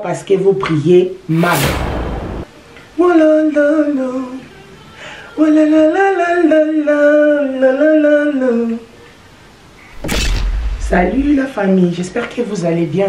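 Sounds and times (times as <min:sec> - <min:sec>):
person singing unaccompanied: 0:02.7 - 0:08.9.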